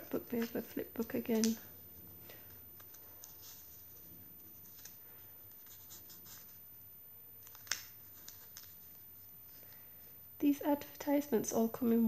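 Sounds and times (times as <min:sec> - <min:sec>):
paper pages turning and rustling: 0:02.5 - 0:06.6, 0:07.4 - 0:09.7.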